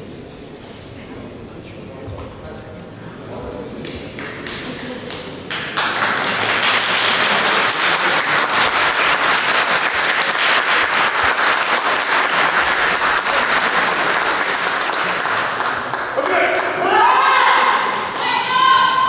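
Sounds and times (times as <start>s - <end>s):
audience applauding: 4.1s - 17.0s.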